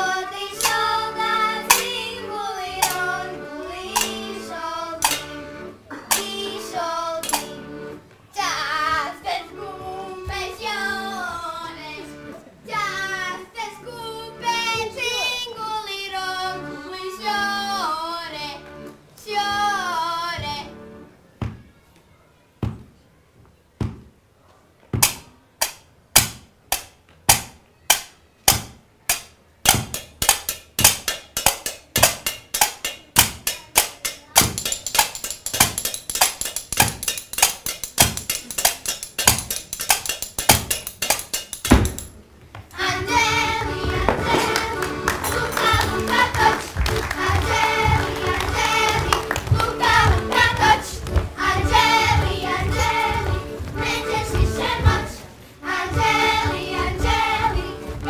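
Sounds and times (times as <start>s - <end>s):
children singing: 0.0s - 18.6s, 19.2s - 20.8s, 42.7s - 58.0s
sharp rhythmic taps: 0.5s - 7.6s, 25.0s - 42.2s, 42.8s - 58.0s
tambourine jingles: 34.5s - 42.1s.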